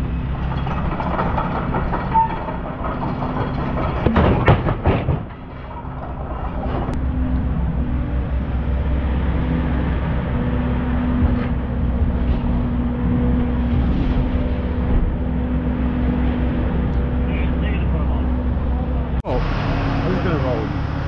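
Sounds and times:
diesel engine running: 0.0 - 21.0
logs knocking on metal bed: 0.7 - 6.2.

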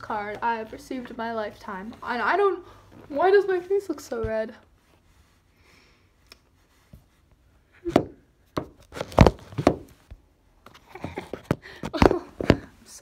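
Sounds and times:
record mailer knocks and bumps: 8.0 - 9.9.

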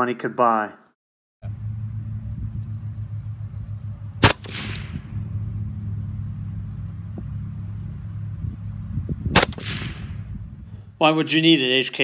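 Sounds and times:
suppressed rifle shot: 4.2 - 5.2, 9.3 - 10.3.

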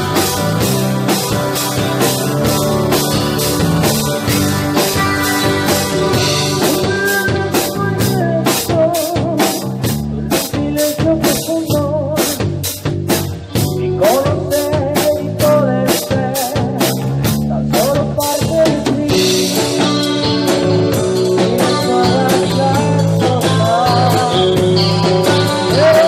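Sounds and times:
wavering lead melody: 0.0 - 8.7
drum kit beat: 0.0 - 26.0
guitar and bass chords: 0.0 - 26.0.

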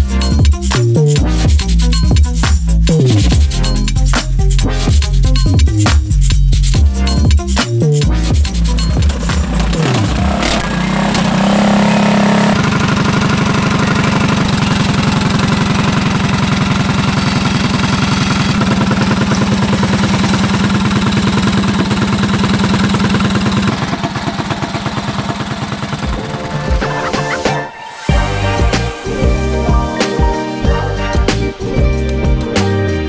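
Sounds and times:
minibike engine running: 8.3 - 27.1.

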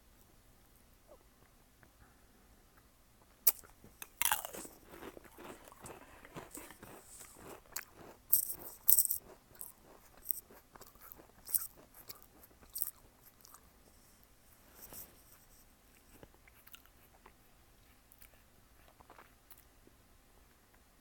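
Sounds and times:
cat crunching a crisp: 3.5 - 14.2.

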